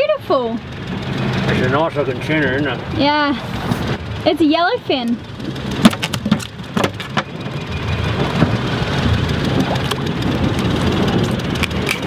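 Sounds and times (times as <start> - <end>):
low hum: 0.0 - 12.0
steady rushing noise: 5.2 - 12.0
fish thrashing on deck: 5.4 - 7.3.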